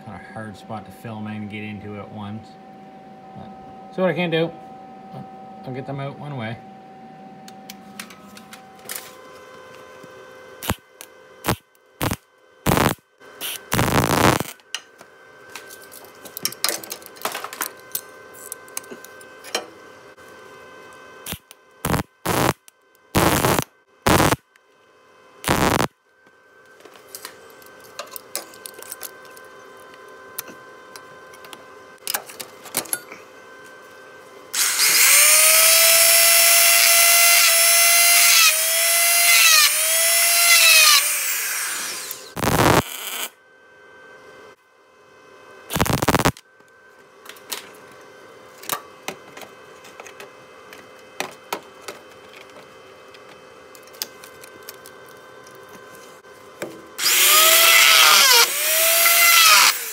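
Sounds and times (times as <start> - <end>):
loud high-pitched whine: 0.0 - 9.7, 10.5 - 14.7, 20.5 - 22.6, 23.2 - 24.4, 25.4 - 26.9, 34.5 - 43.9, 45.6 - 46.4, 57.0 - 59.9
welder tack weld bursts: 10.6 - 10.8, 11.4 - 14.6, 21.2 - 22.6, 23.2 - 24.4, 25.4 - 25.9, 34.6 - 43.4, 45.7 - 46.4, 57.0 - 59.9.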